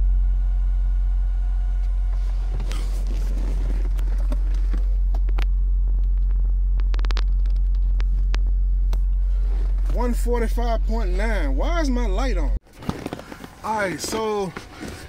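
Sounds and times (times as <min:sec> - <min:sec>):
subwoofer low test tone: 0:00.0 - 0:12.6
sharp clicks and ticks: 0:05.1 - 0:09.1.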